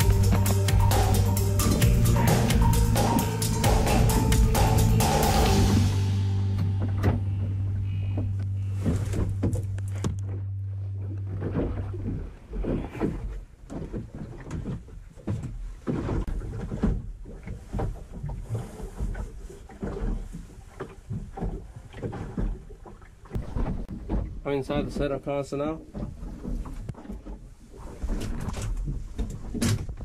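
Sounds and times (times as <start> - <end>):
held low musical note: 0.0 - 13.0.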